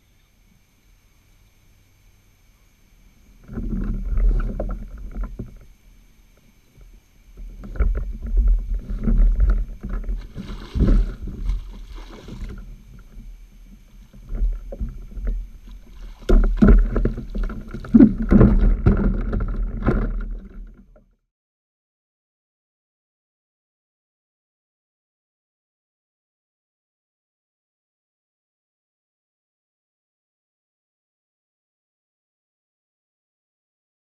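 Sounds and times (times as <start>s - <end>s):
fish splashing in water: 9.6s - 13.2s
knocks against kayak hull: 14.2s - 20.9s.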